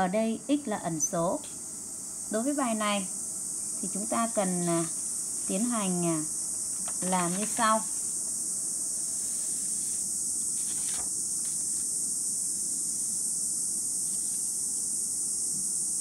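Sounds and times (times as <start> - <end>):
steady high-pitched hiss: 0.0 - 16.0
paper rustling: 6.8 - 8.0, 9.1 - 11.9.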